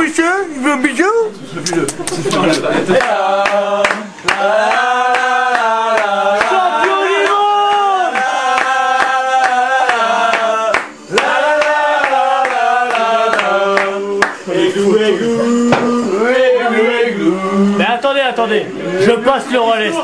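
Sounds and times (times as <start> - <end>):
men singing a chant: 1.3 - 18.1
rhythmic clapping: 1.5 - 14.5, 15.6 - 16.0.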